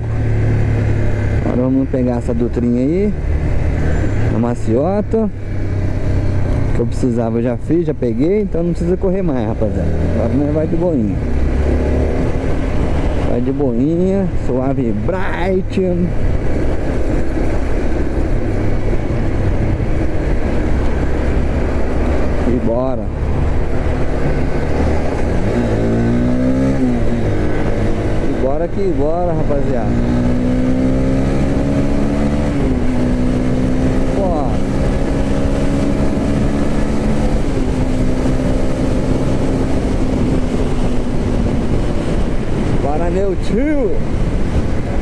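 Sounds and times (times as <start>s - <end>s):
motorcycle engine cruising: 0.0s - 45.0s
wind on microphone: 15.9s - 28.6s, 29.8s - 45.0s.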